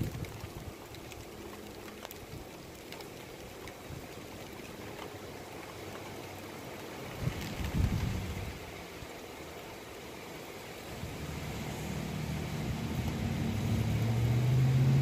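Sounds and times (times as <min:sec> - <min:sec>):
faint ticks: 0:00.0 - 0:08.2
outdoor background noise: 0:00.0 - 0:15.0.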